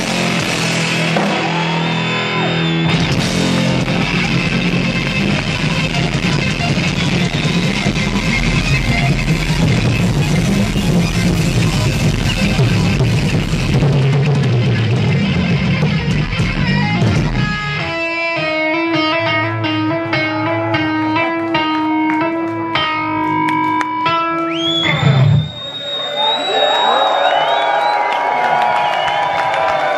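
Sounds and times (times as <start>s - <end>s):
heavy metal band playing live: 0.0s - 25.6s
electric guitar single notes: 2.0s - 25.5s.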